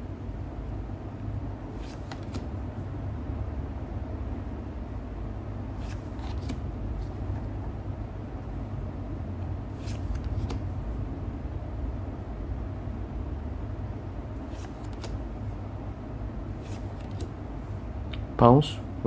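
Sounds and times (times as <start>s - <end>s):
card swishes and clicks: 1.7s - 2.6s, 5.8s - 7.5s, 9.7s - 10.8s, 14.4s - 15.2s, 16.5s - 17.4s
steady low rumble: 2.5s - 14.5s.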